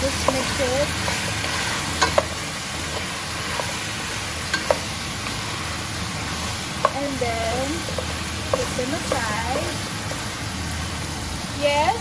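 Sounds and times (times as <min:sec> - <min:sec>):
vegetables sizzling in a pot: 0:00.0 - 0:12.0
wooden spoon knocking on pot: 0:02.0 - 0:02.4, 0:07.9 - 0:09.4.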